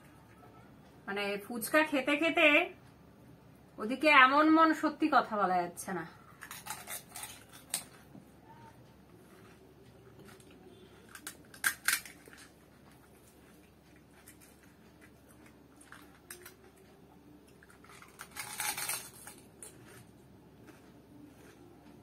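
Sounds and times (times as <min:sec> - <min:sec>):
crisp shells cracking: 0:06.4 - 0:08.0, 0:10.2 - 0:12.6, 0:17.6 - 0:20.1
crunching noise: 0:09.1 - 0:22.0.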